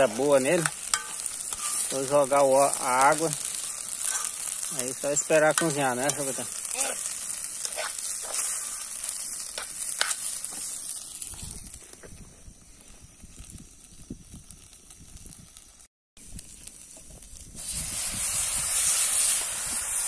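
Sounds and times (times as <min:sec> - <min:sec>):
rice sizzling in hot oil: 0:00.0 - 0:20.0.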